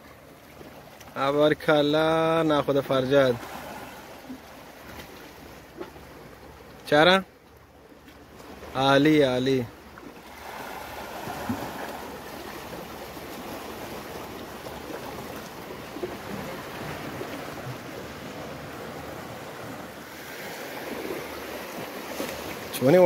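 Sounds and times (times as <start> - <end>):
sea waves washing against rocks: 8.4 - 23.0.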